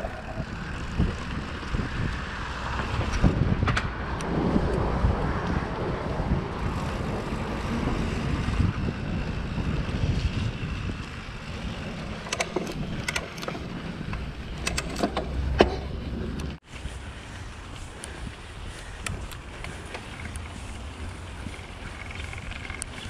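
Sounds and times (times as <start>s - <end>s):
tyres on dirt trail: 0.0s - 23.0s
wind buffeting microphone: 0.0s - 23.0s
sharp clicks and rattles: 11.9s - 16.6s, 21.4s - 23.0s.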